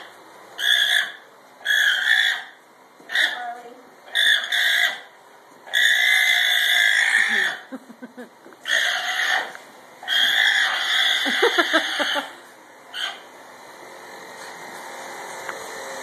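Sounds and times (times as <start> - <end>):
alpaca screaming: 0.6 - 3.4, 4.1 - 5.1, 5.7 - 7.7, 8.6 - 12.3.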